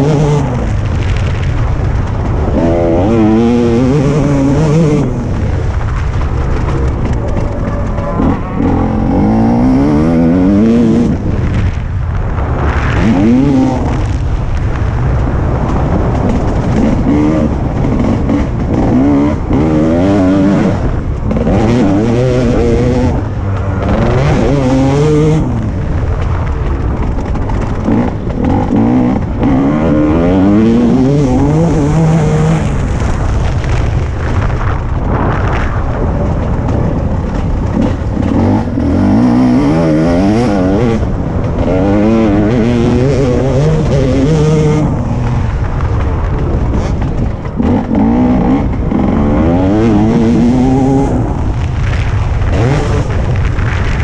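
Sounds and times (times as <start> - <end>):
motocross bike engine revving: 0.0 - 11.8, 12.6 - 54.0.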